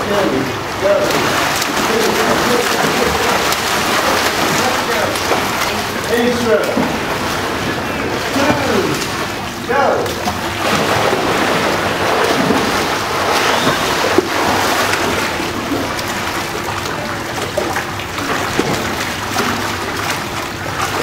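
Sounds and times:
children splashing in pool: 0:00.0 - 0:21.0.

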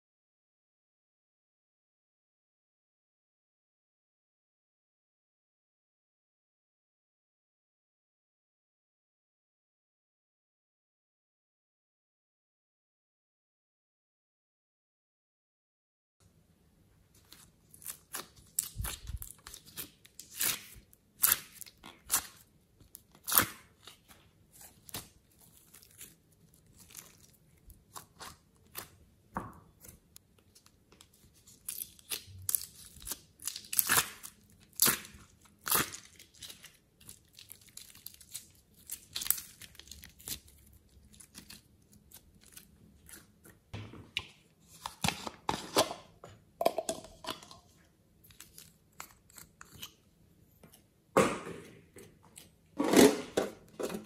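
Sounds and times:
sticky clay crackles and pops: 0:17.3 - 0:43.6.

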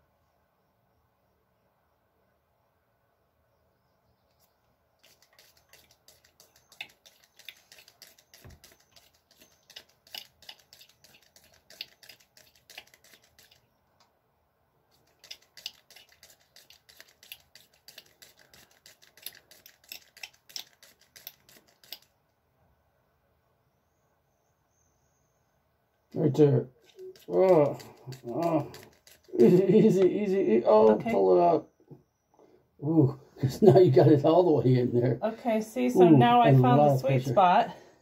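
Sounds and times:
spray bottle squirting water: 0:05.0 - 0:13.6, 0:14.9 - 0:22.2, 0:26.8 - 0:30.0.

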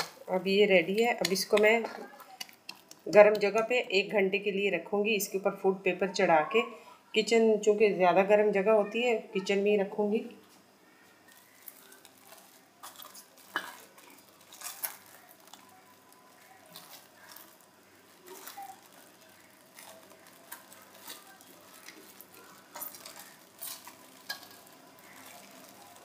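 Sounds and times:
cling film crinkling: 0:10.4 - 0:26.0.

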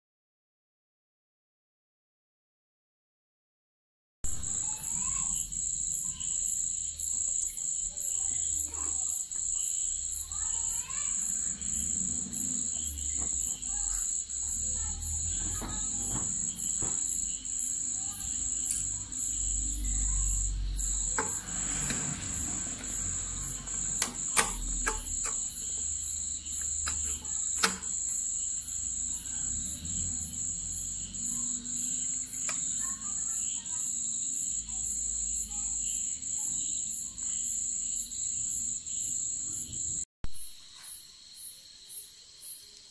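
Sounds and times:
crickets chirping: 0:04.3 - 0:42.9
sharp clicks: 0:23.9 - 0:25.7, 0:26.6 - 0:28.0.

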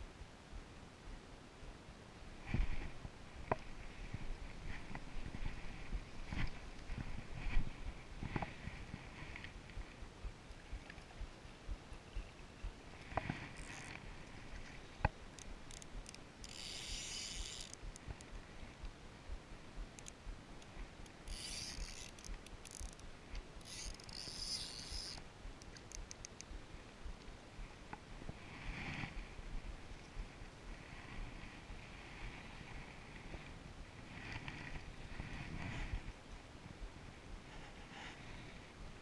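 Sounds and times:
wind rumble on microphone: 0:00.0 - 0:23.7, 0:25.1 - 0:39.0
fishing reel whirring: 0:13.6 - 0:14.0, 0:15.4 - 0:18.1, 0:20.0 - 0:20.2, 0:21.0 - 0:26.6.

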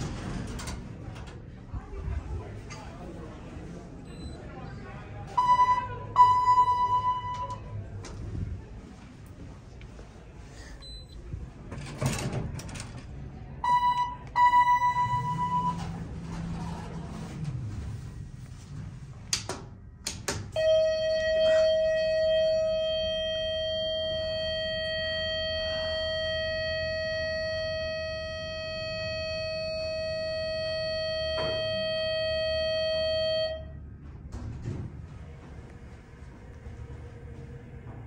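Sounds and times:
elevator buzzer steady tone: 0:20.6 - 0:33.8.

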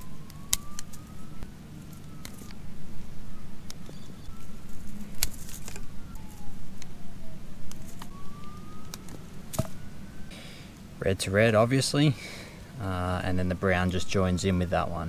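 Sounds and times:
wire strippers clicking and snipping: 0:00.0 - 0:01.1, 0:01.8 - 0:02.6, 0:04.7 - 0:06.9
rustling handling noise: 0:00.0 - 0:10.0.

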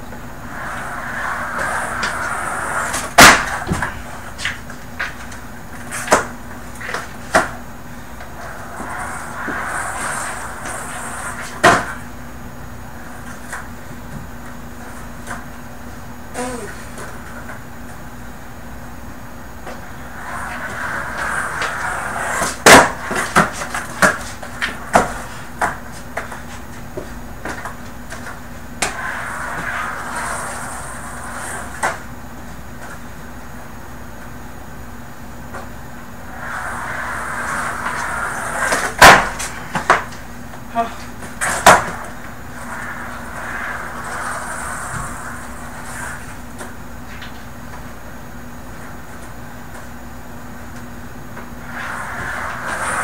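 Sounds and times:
skateboard rolling on carpet: 0:00.0 - 0:53.0
skateboard slamming down: 0:00.5 - 0:04.1, 0:08.5 - 0:12.0, 0:20.1 - 0:25.8, 0:36.3 - 0:40.2, 0:41.4 - 0:46.4
skateboard clatters and knocks: 0:20.2 - 0:26.5
skateboard clacking on landing: 0:36.4 - 0:40.2.

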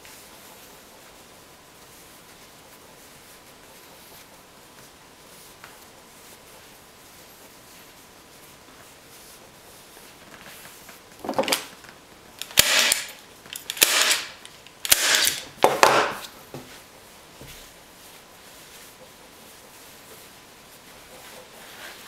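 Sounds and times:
staple gun snapping: 0:12.4 - 0:16.2
fabric rustling: 0:16.2 - 0:22.0.

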